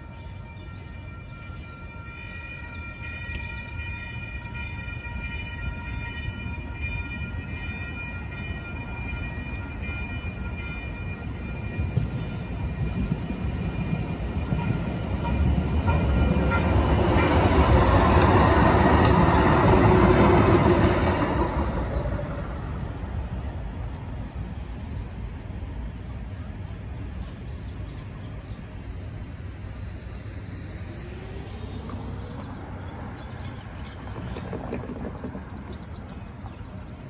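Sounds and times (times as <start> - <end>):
crossing signal bell ringing: 0.0 - 21.0
light-rail train passing: 0.0 - 37.0.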